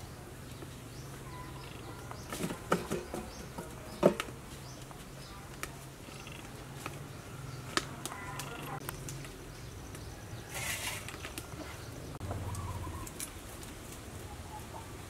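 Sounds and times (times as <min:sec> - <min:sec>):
wood fire crackling: 0:00.0 - 0:15.0
faint bird chirps: 0:01.2 - 0:02.3.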